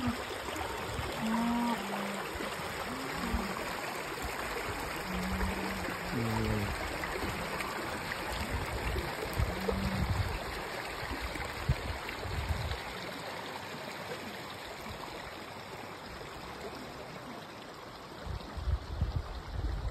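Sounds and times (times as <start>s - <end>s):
creek babbling over stones: 0.0s - 19.9s
wind buffeting microphone: 8.4s - 10.4s.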